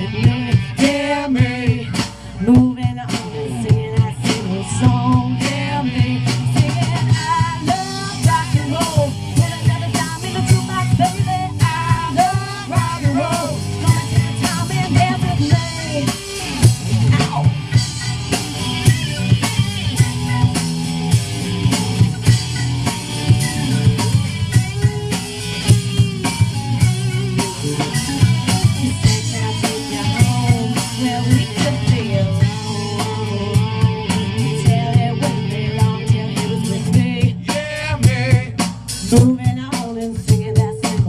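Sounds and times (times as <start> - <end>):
woman singing: 0.0 - 16.2, 28.7 - 41.0
live band playing: 0.0 - 41.0.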